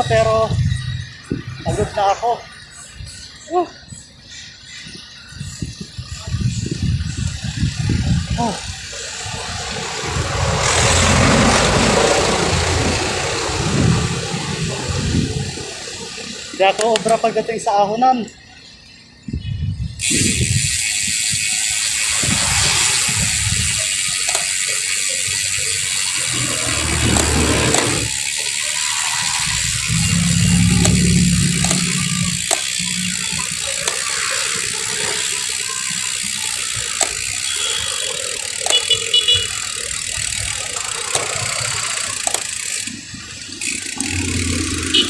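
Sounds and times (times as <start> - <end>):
wind rushing over microphone: 0.0 - 2.0, 5.3 - 16.5, 19.2 - 24.3
motorcycle and vehicle engines: 0.0 - 45.0.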